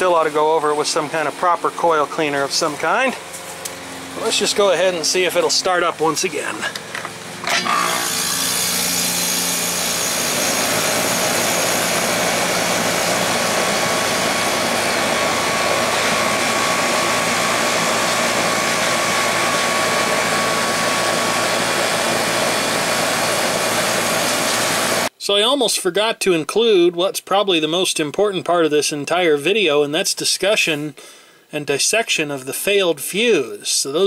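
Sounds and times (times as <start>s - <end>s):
air conditioner unit running: 0.0s - 25.1s.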